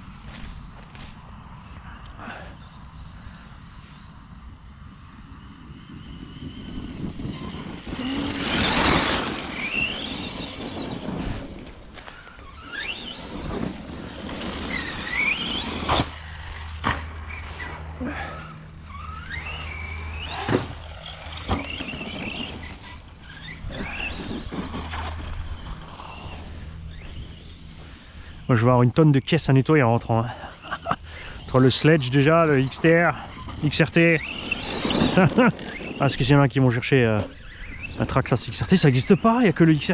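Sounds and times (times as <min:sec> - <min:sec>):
electric motor whine: 0:00.0 - 0:29.6, 0:30.5 - 0:39.9
tyres spinning in dirt: 0:04.0 - 0:39.9
toy truck jump landing thumps: 0:20.3 - 0:22.7.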